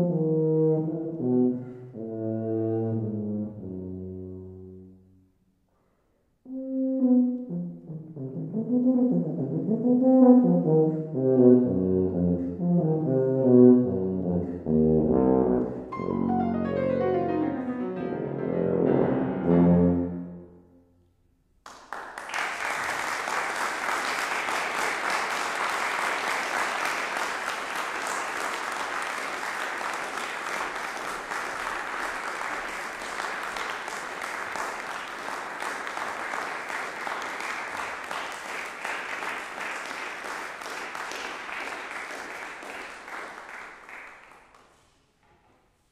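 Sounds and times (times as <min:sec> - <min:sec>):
tubas and piano chord: 0:06.5 - 0:20.8
audience applause: 0:21.6 - 0:44.8.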